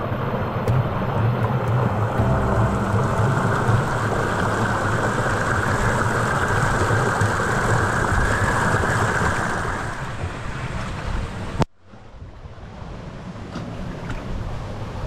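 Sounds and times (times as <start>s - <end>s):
water cascading into rock pool: 1.6s - 10.7s.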